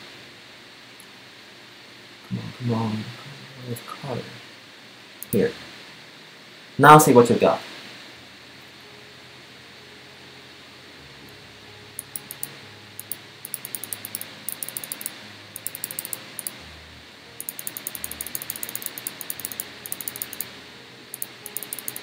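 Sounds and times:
mouse scroll wheel ticking: 0:12.0 - 0:16.6, 0:17.4 - 0:20.5, 0:21.2 - 0:22.0.

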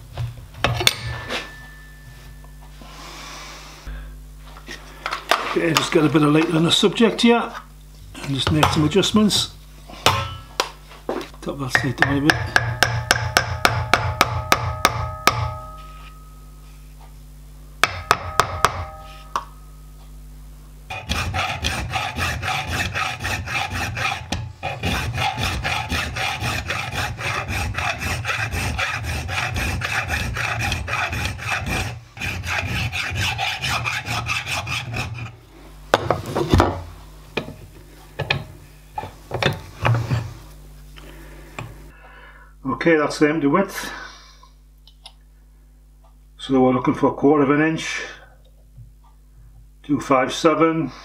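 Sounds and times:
hand file on metal bar: 0:20.9 - 0:35.4.

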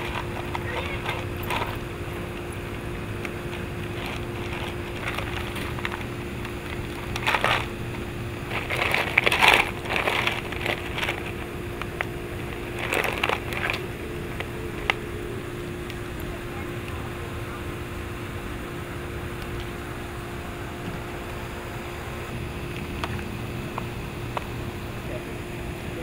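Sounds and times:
puppies crunching ice cubes: 0:00.0 - 0:18.0.

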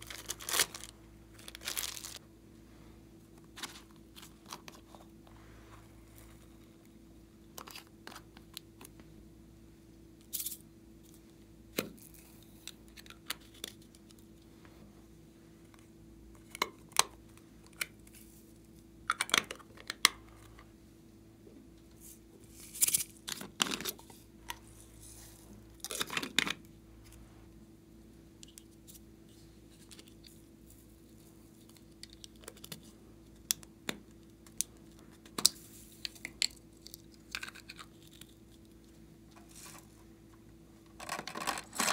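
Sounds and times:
plastic crinkling: 0:00.0 - 0:02.2
faint steady hum: 0:00.0 - 0:41.9.

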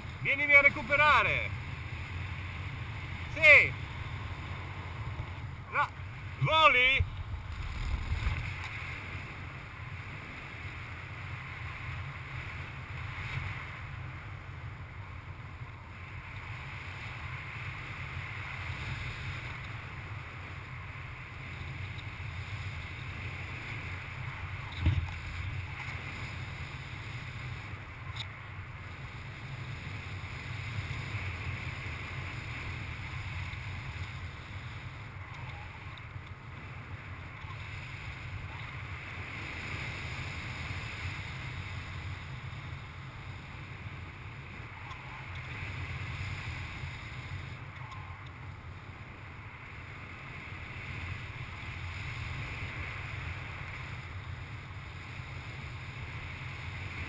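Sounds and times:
wind rushing over microphone: 0:00.0 - 0:14.2
short thump: 0:24.8 - 0:25.1.

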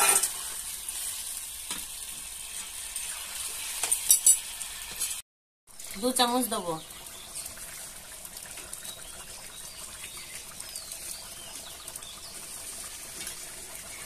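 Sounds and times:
curry boiling in a pot: 0:05.7 - 0:14.0
wood fire crackling: 0:05.7 - 0:14.0.

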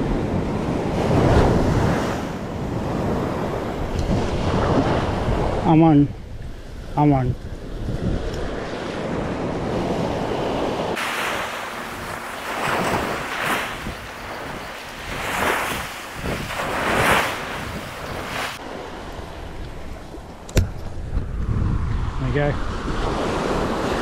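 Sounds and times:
wind buffeting microphone: 0:00.0 - 0:24.0
surf washing onto beach: 0:07.6 - 0:24.0.

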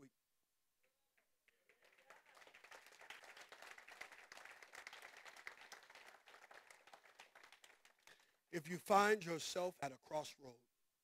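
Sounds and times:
faint applause: 0:01.4 - 0:08.4.

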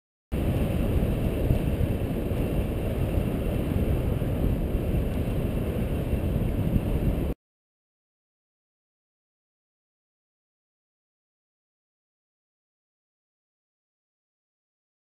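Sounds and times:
wind rumble on microphone: 0:00.3 - 0:07.4.

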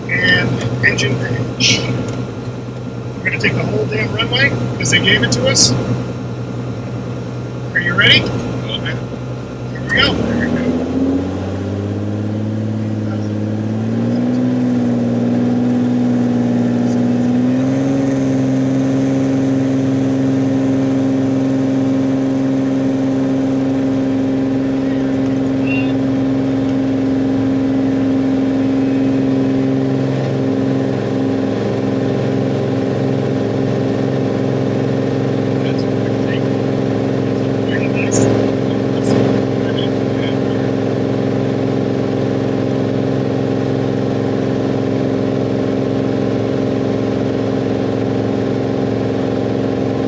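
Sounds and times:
aircraft engine and propeller: 0:00.0 - 0:50.0.

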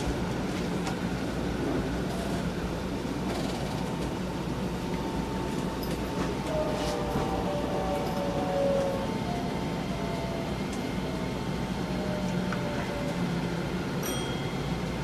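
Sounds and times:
train wheels rumbling on rails: 0:00.0 - 0:15.0
faint whining tones: 0:04.8 - 0:15.0.

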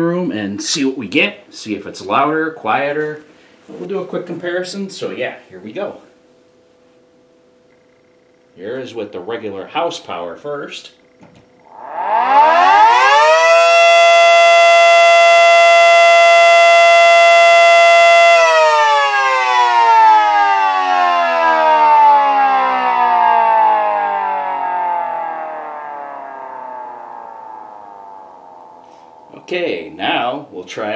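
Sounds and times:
electric siren wailing: 0:11.6 - 0:30.2.

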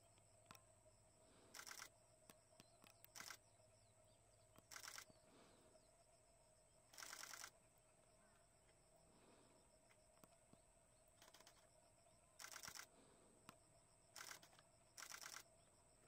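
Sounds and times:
camera shutter bursts: 0:01.5 - 0:01.9, 0:03.1 - 0:03.4, 0:04.7 - 0:05.1, 0:06.9 - 0:07.5, 0:11.2 - 0:11.6, 0:12.4 - 0:12.9, 0:14.2 - 0:15.5.

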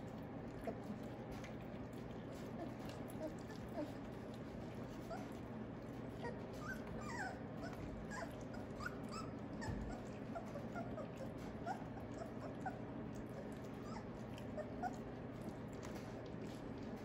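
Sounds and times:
puppies eating clicks: 0:00.0 - 0:17.0
puppies whimpering and squeaking: 0:02.3 - 0:17.0.

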